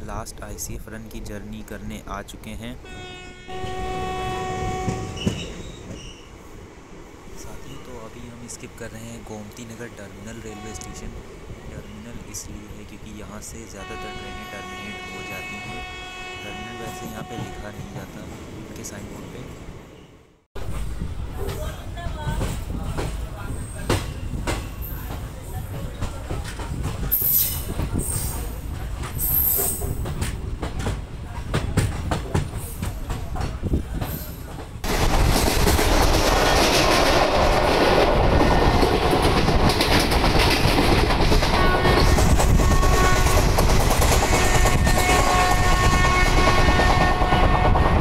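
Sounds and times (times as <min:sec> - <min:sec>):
wheel squeals: 0:05.1 - 0:06.3
train wheels clicking on track: 0:20.6 - 0:48.0.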